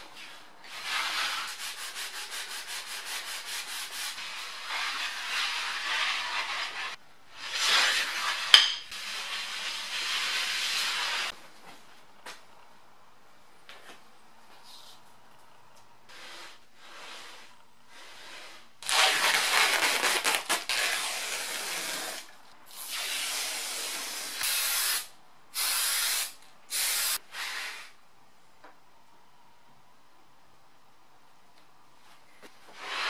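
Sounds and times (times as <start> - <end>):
hissing bursts: 22.7 - 27.9.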